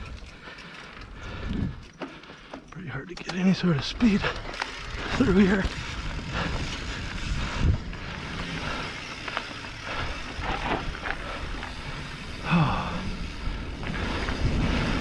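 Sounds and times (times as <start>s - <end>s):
bike rattling over roots: 0.0s - 15.0s
tyres crunching on dirt: 1.8s - 15.0s
wind on microphone: 5.7s - 9.0s.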